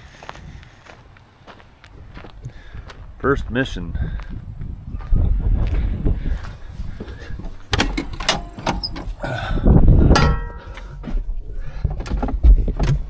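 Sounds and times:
steps on a metal ladder: 6.4s - 9.2s, 10.1s - 13.0s
cab door opening and shutting: 7.7s - 9.3s, 12.0s - 13.0s.

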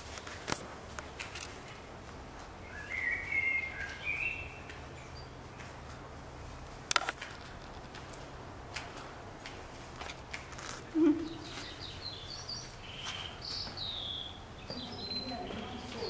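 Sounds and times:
bird warbling and chirping: 11.0s - 16.0s.

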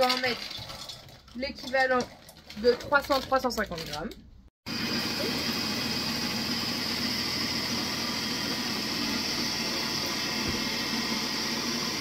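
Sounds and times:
electric chopper motor running: 4.7s - 12.0s.

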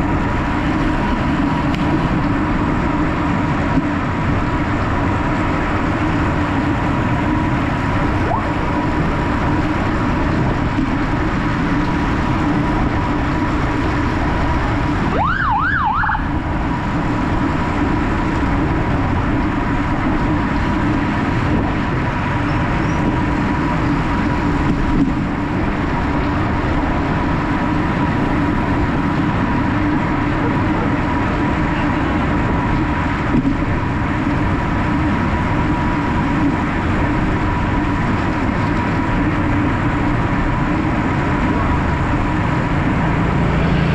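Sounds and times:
wind and road noise: 0.0s - 43.9s
siren yelp: 8.0s - 8.8s, 15.0s - 16.4s.

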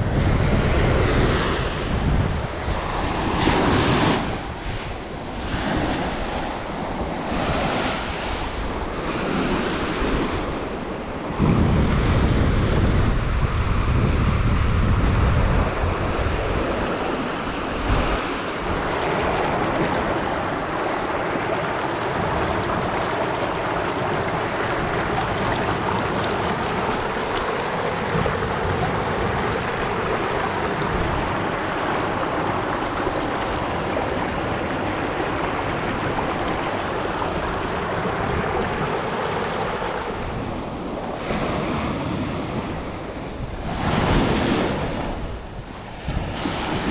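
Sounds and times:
wind buffeting microphone: 0.0s - 46.9s
waves washing up pebble beach: 15.8s - 46.9s.

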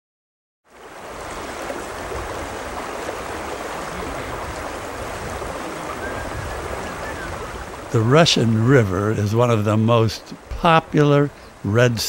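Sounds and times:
river water rushing: 0.7s - 12.0s.

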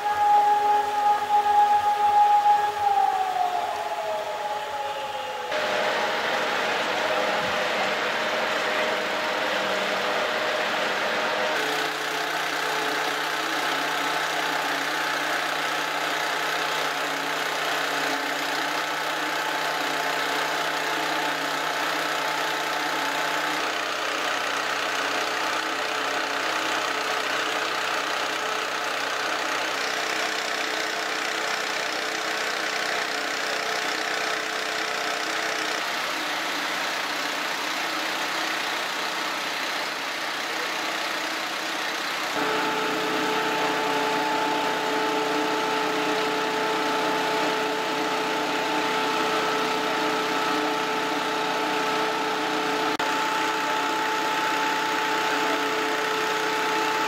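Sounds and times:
steady hum: 0.0s - 24.2s, 42.3s - 57.0s
diesel engines idling: 0.0s - 57.0s.

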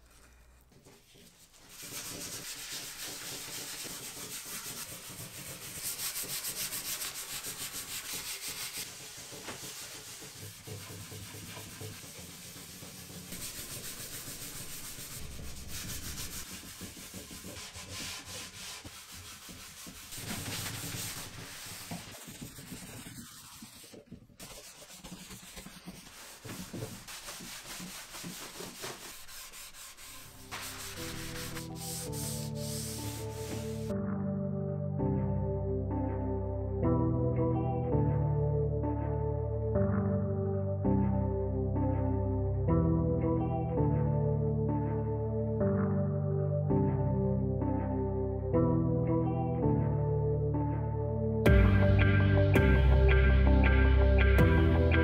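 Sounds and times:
cloth rubbing on wood: 0.0s - 33.9s.

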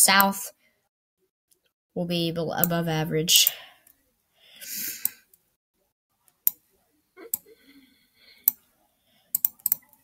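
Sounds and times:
computer mouse clicking: 9.3s - 10.0s.

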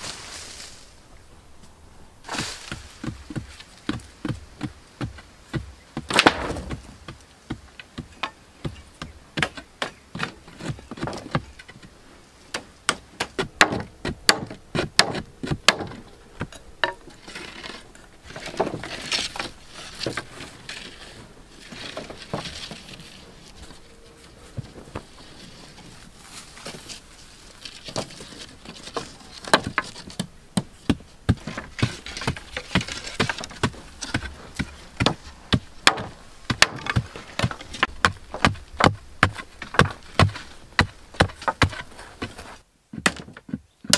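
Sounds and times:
poles rustling and scraping: 0.0s - 43.6s
machete chopping wooden poles: 2.3s - 11.8s, 12.5s - 17.0s, 27.9s - 43.9s.

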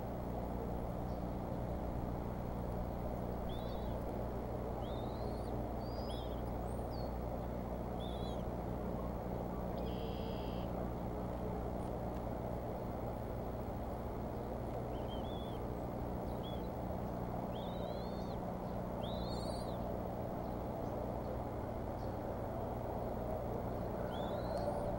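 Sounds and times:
outdoor background rumble and hiss: 0.0s - 24.9s
short chirping bird calls: 3.4s - 4.0s, 4.8s - 7.1s, 8.0s - 8.4s, 9.8s - 10.7s, 14.9s - 15.6s, 16.3s - 16.7s, 17.5s - 18.4s, 19.0s - 19.8s, 24.0s - 24.9s
buzzy bird call: 4.8s - 7.1s, 9.8s - 10.7s, 14.9s - 15.6s, 17.5s - 18.4s, 19.0s - 19.9s, 24.0s - 24.9s.

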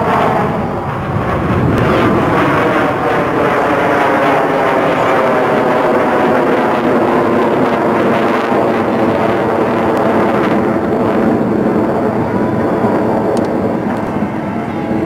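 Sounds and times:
jet engines passing overhead: 0.0s - 15.0s.

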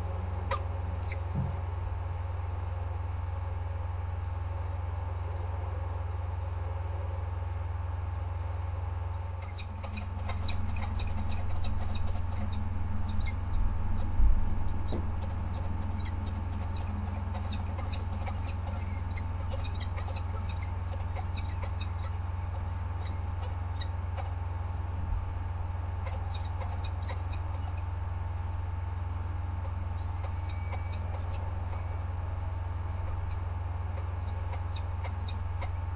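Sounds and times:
low electrical hum: 0.0s - 35.9s
falcons chittering: 9.1s - 24.5s, 25.9s - 28.6s, 29.5s - 35.9s.

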